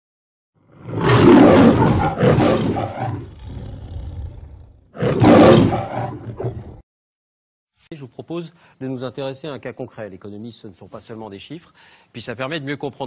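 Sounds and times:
lion roaring: 0.7s - 6.8s.

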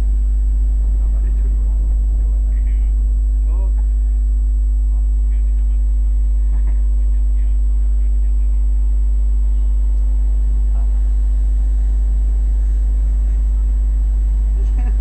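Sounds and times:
loud low hum: 0.0s - 15.0s
faint voices: 0.7s - 15.0s
faint higher tone: 6.9s - 15.0s.

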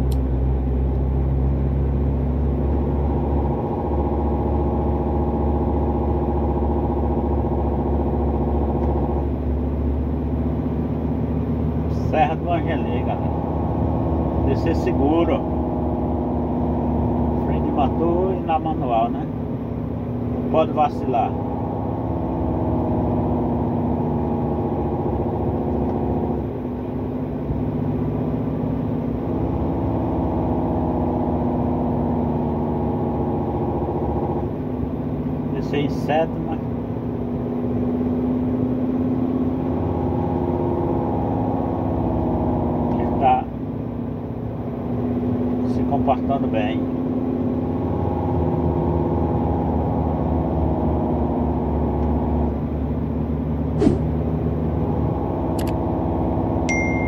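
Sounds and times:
diesel truck engine braking: 53.4s - 57.0s.

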